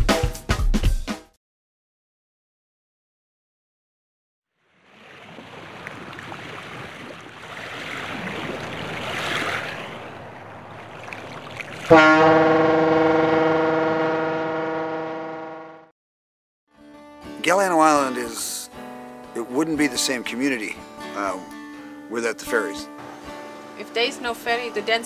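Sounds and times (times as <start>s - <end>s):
waves washing: 4.8s - 14.3s
ship's horn blast: 11.8s - 15.9s.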